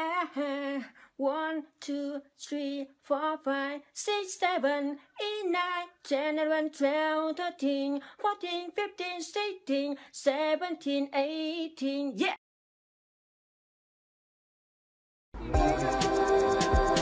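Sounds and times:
man singing a sing-song chant: 15.4 - 17.0.

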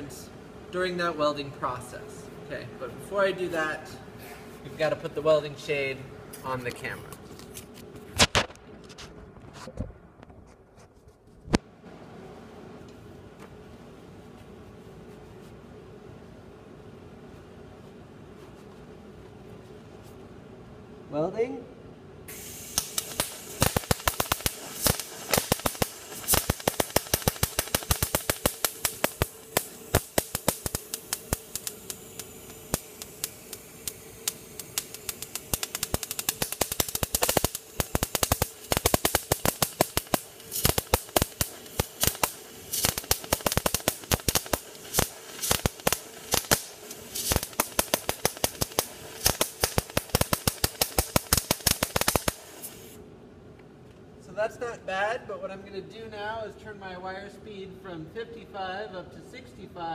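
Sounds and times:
steady welder hum: 0.0 - 9.3, 22.1 - 59.7
welding arc crackling and popping: 22.3 - 53.0.

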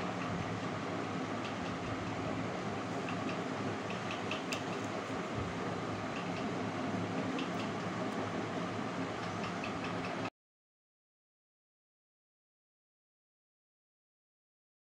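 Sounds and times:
room hum and hiss: 0.0 - 10.3.

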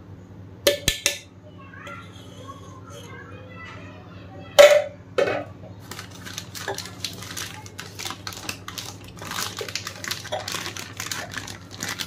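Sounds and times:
plastic pouch crinkling: 5.8 - 12.0.

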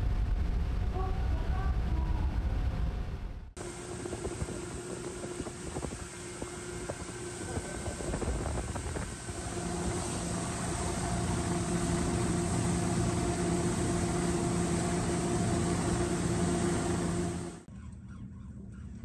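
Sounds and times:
outboard motor running: 3.6 - 17.7
wind and water rushing: 3.6 - 17.7.

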